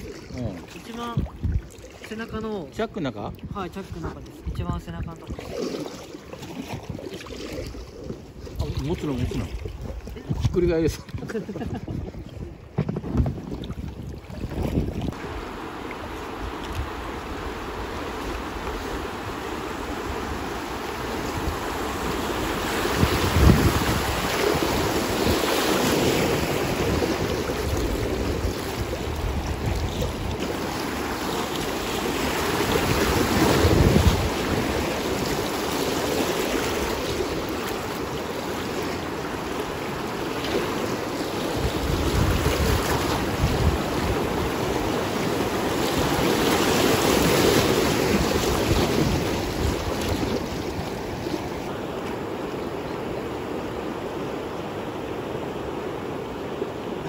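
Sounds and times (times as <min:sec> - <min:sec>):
wind buffeting microphone: 0:00.0 - 0:01.8, 0:06.5 - 0:15.5, 0:16.2 - 0:38.2, 0:41.0 - 0:51.8
rushing river water: 0:00.0 - 0:12.8, 0:13.4 - 0:57.0.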